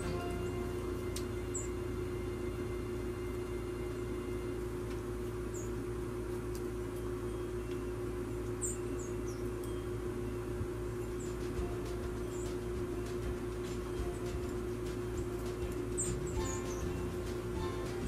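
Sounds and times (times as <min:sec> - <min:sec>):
steady low hum: 0:00.0 - 0:18.0
songbirds high call notes: 0:08.4 - 0:09.9, 0:11.0 - 0:18.0.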